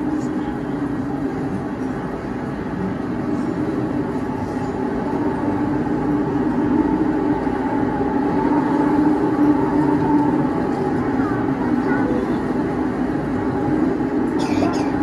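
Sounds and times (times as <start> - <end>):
film soundtrack rumbling drone: 0.0 - 15.0.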